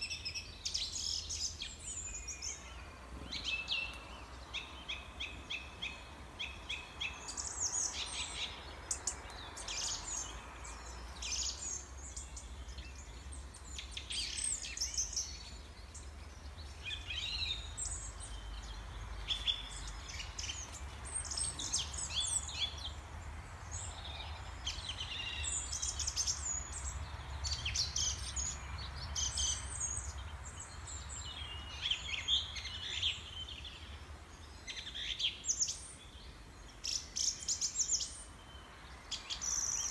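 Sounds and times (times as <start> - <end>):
songbirds chirping: 0.0 - 39.9.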